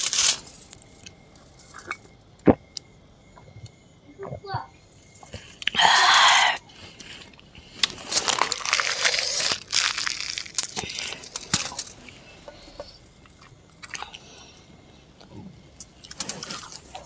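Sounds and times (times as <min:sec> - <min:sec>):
bread crackling and tearing: 0:00.0 - 0:01.1, 0:07.1 - 0:12.0.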